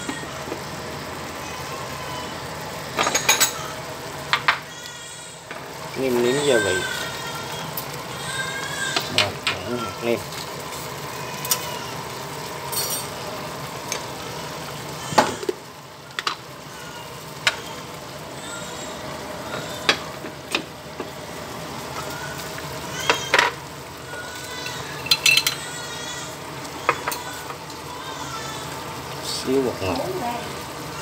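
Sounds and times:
soup bubbling in a pot: 0:03.7 - 0:31.0.

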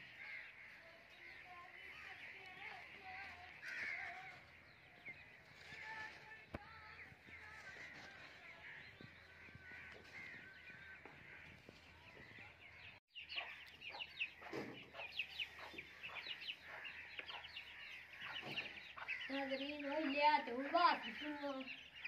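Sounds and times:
chickens clucking and chirping: 0:04.3 - 0:22.0.

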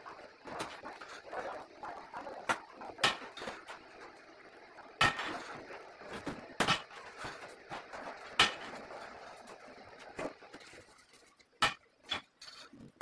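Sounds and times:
knocks and clatters on a frame: 0:05.0 - 0:09.2.

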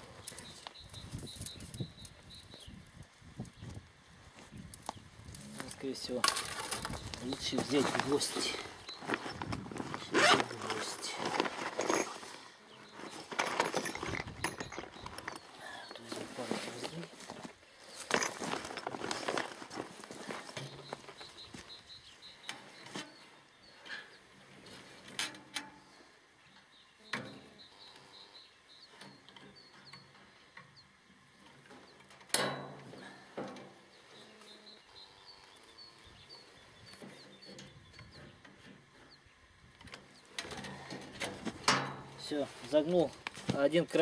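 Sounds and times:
small birds chirping: 0:00.0 - 0:25.1, 0:25.8 - 0:32.1, 0:33.0 - 0:40.9.

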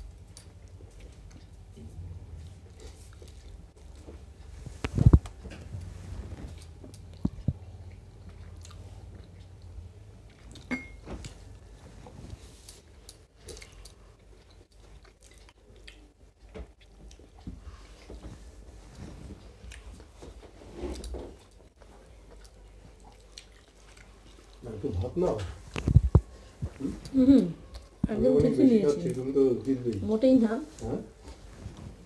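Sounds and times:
chewing and wet mouth noises: 0:00.0 - 0:05.3, 0:06.4 - 0:11.4, 0:12.0 - 0:18.4, 0:19.4 - 0:20.2, 0:20.9 - 0:28.1.

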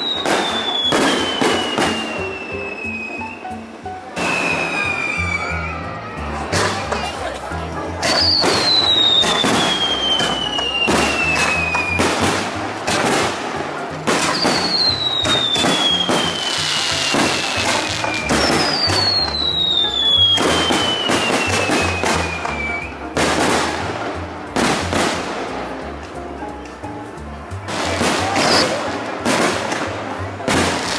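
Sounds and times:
firework shells bursting: 0:00.0 - 0:03.0, 0:08.0 - 0:25.5
descending firework whistles: 0:00.0 - 0:03.6, 0:04.2 - 0:06.2, 0:08.1 - 0:12.2, 0:14.2 - 0:23.0.

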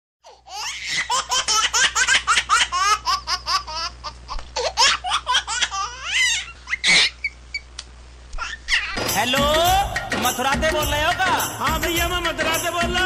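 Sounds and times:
high-pitched laughter: 0:04.9 - 0:07.4.

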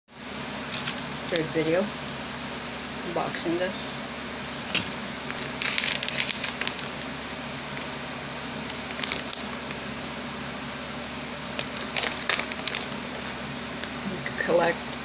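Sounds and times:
faint steady hum: 0:00.1 - 0:15.0
paper crinkling and rustling: 0:00.7 - 0:01.5, 0:04.6 - 0:10.0, 0:11.5 - 0:13.4.

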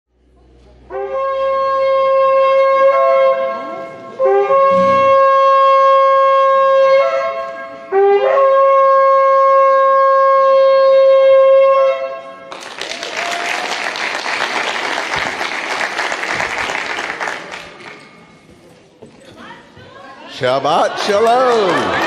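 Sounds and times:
shofar blasts: 0:00.9 - 0:12.5.

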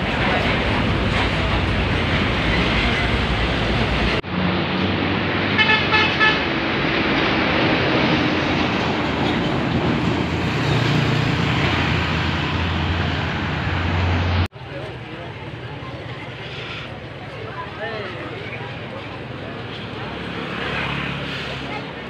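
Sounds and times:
bus diesel engine: 0:00.0 - 0:22.0
musical bus horn toots: 0:05.6 - 0:06.5.

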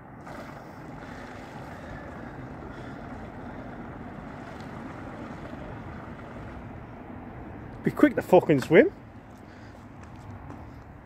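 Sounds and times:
lake water lapping: 0:00.0 - 0:07.6.

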